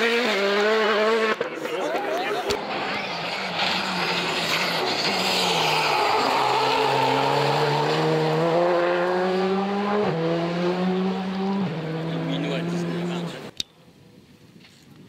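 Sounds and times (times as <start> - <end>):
rally car engine accelerating: 0.0 - 13.5.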